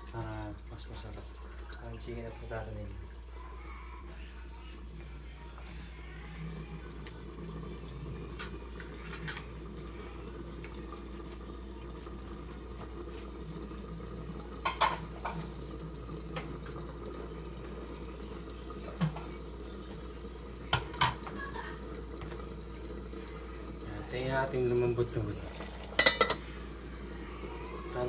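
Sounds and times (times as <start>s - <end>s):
stew simmering in pan: 0.0s - 28.0s
metal lid clinking: 25.9s - 26.4s.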